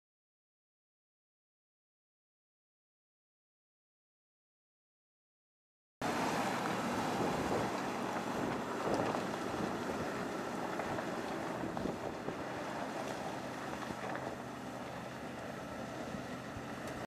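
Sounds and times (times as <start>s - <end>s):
car engine running: 6.0s - 17.0s
wind buffeting microphone: 6.1s - 14.5s.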